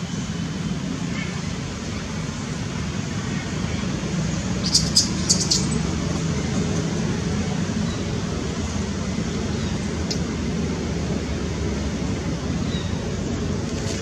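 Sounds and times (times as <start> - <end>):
low rumble with hiss: 0.0 - 14.0.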